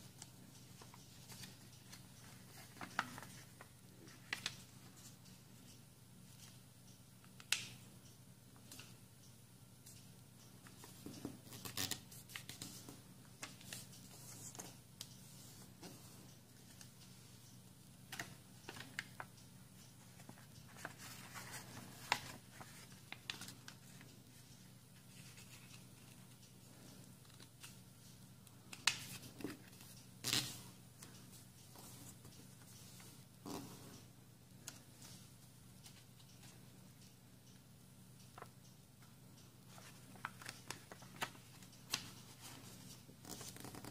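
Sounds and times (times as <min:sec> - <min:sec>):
paper rustling: 0:00.8 - 0:05.2, 0:39.7 - 0:43.9.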